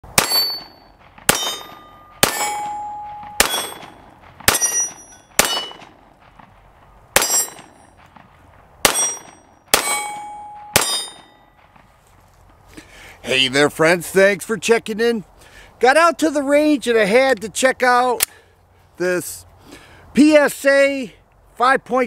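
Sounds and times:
pistol shots: 0.1s - 6.5s, 7.1s - 11.6s.

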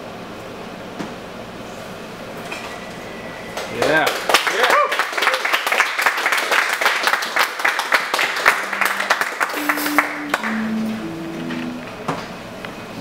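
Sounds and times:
audience applauding: 3.8s - 11.7s
held low notes: 8.4s - 12.6s.

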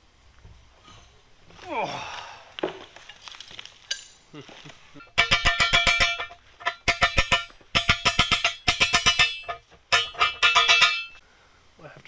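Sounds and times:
hammer blows on metal: 5.0s - 11.2s.

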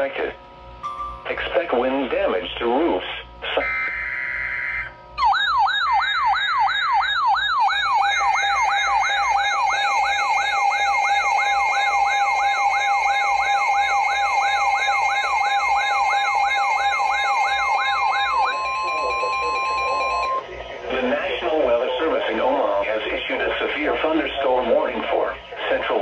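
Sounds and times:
electronic siren yelping: 3.4s - 20.4s
steady electronic tone: 3.4s - 22.8s.

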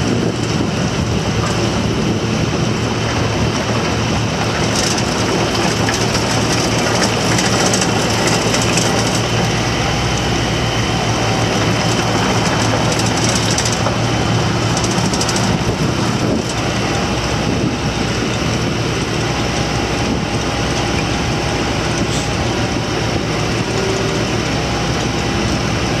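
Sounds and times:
excavator diesel engine running: 0.0s - 26.0s
mechanical track clatter: 0.3s - 2.1s, 3.0s - 10.4s, 11.0s - 17.5s.

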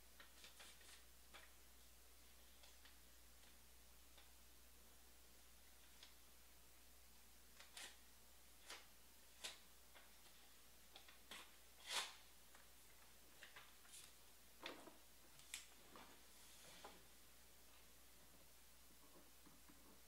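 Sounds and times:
faint clicks and taps: 18.2s - 20.0s.

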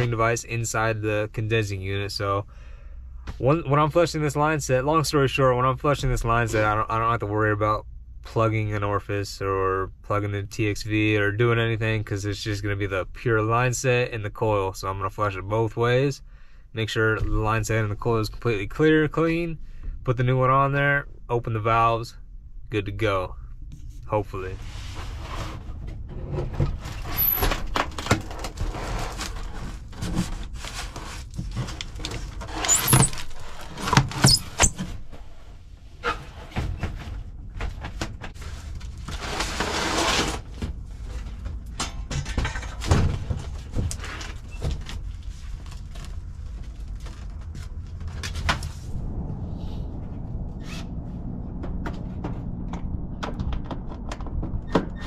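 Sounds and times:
box scraping across floor: 24.6s - 27.6s, 28.3s - 33.8s, 38.4s - 40.5s
short squeals: 32.5s - 33.5s, 34.1s - 34.8s.

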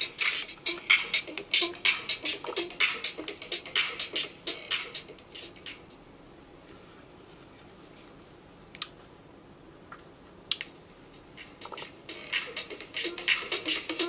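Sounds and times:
beat-driven music from speaker: 0.0s - 6.0s, 11.1s - 14.0s.

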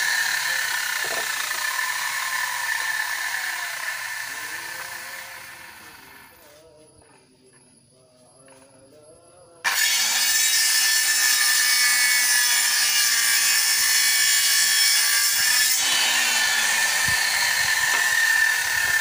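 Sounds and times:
circular saw cutting wood: 0.0s - 6.4s, 9.7s - 19.0s.

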